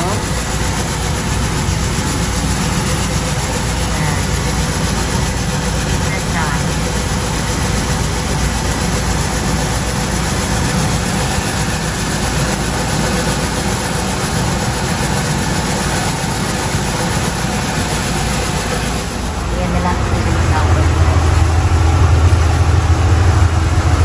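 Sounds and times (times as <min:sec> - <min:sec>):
rice polishing machine running: 0:00.0 - 0:24.0.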